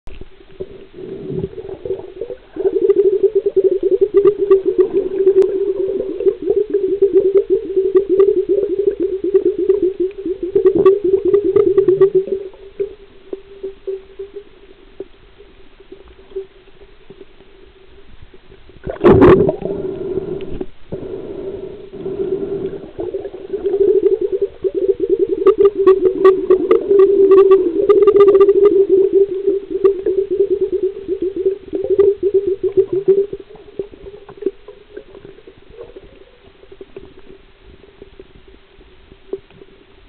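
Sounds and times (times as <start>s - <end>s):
underwater hum: 0.1s - 40.0s
water bubbling: 0.2s - 17.5s, 18.7s - 38.6s.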